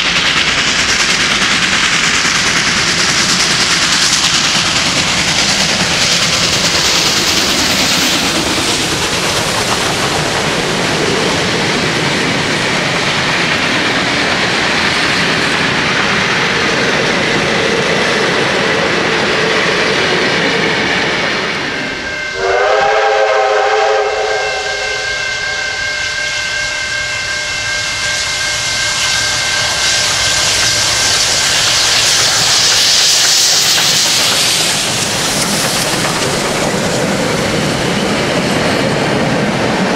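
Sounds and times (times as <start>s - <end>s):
train wheels clattering: 0.0s - 22.8s, 27.7s - 39.9s
steam locomotive exhaust roar: 0.0s - 39.9s
steam whistle: 22.1s - 30.8s.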